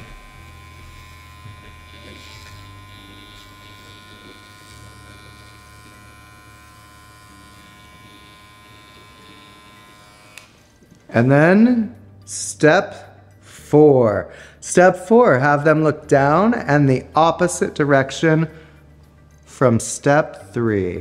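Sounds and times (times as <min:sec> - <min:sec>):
electric hair clippers buzzing: 0:00.0 - 0:11.1.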